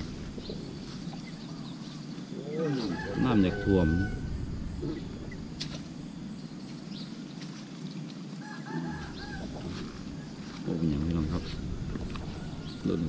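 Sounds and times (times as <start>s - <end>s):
chickens clucking: 0.0s - 5.8s
outdoor background hiss: 0.0s - 13.0s
rooster crowing: 2.5s - 4.8s, 8.4s - 10.6s, 12.0s - 13.0s.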